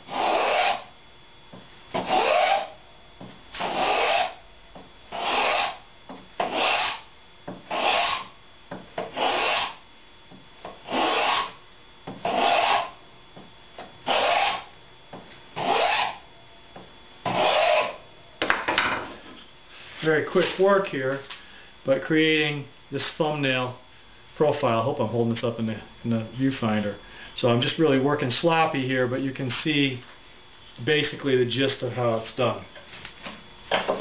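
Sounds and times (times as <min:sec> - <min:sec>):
wooden plane cutting a board: 0:00.1 - 0:00.9, 0:01.9 - 0:02.8, 0:03.6 - 0:04.4, 0:05.1 - 0:05.8, 0:06.4 - 0:08.3, 0:09.0 - 0:09.8, 0:10.8 - 0:11.6, 0:12.2 - 0:13.0, 0:14.0 - 0:14.7, 0:15.6 - 0:16.2, 0:17.2 - 0:18.0.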